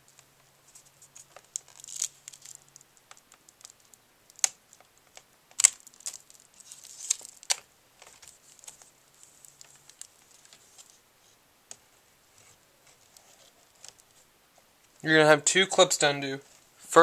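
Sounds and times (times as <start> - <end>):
light crinkling and rustling: 0.0 - 15.2, 15.8 - 17.0.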